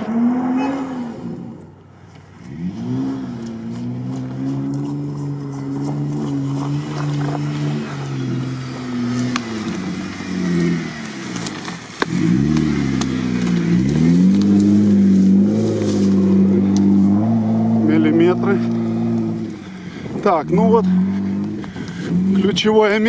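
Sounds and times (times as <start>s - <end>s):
car engine revving: 0.0s - 23.0s
sharp crack: 8.6s - 16.9s.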